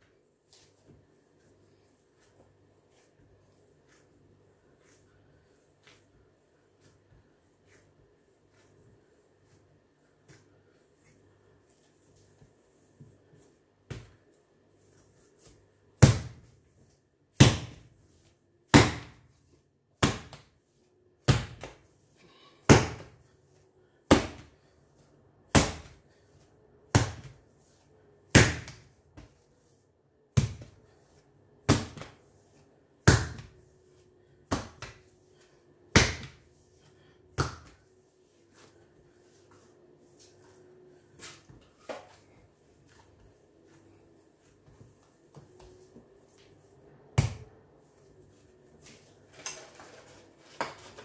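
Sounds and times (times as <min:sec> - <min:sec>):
dough slapped on countertop: 0:17.4 - 0:17.9, 0:18.7 - 0:19.2, 0:20.0 - 0:20.5, 0:21.2 - 0:21.8, 0:25.5 - 0:26.0, 0:26.9 - 0:27.4, 0:28.3 - 0:29.4, 0:31.7 - 0:32.2, 0:33.0 - 0:33.5, 0:35.9 - 0:36.4, 0:37.4 - 0:37.8, 0:47.2 - 0:47.5.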